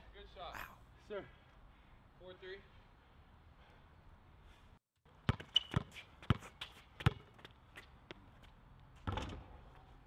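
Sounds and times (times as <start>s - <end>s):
basketball bouncing on concrete: 5.2s - 8.2s, 9.0s - 9.6s.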